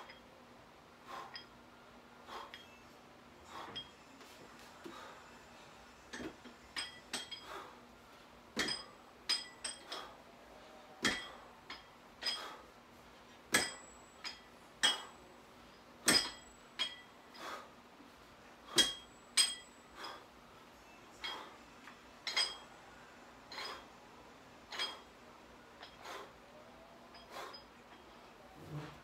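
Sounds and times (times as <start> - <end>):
iron dumbbells clinking: 0.0 - 0.3, 1.1 - 1.7, 2.3 - 5.1, 6.1 - 7.8, 8.5 - 10.2, 11.0 - 12.7, 13.4 - 17.7, 18.6 - 22.8, 23.5 - 23.9, 24.6 - 25.2, 25.8 - 26.3, 27.0 - 29.0.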